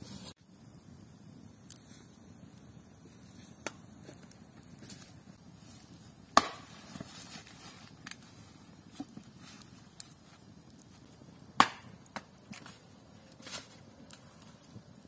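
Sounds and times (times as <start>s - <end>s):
wood chopping with blade: 6.4s - 6.7s.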